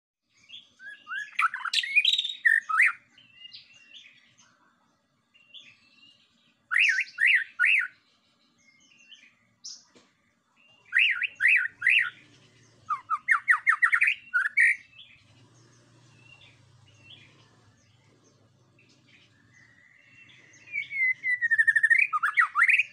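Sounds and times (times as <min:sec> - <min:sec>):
bird singing whistled phrases: 0:00.4 - 0:04.3, 0:05.4 - 0:08.0, 0:10.9 - 0:12.2, 0:12.9 - 0:15.2, 0:19.2 - 0:22.9.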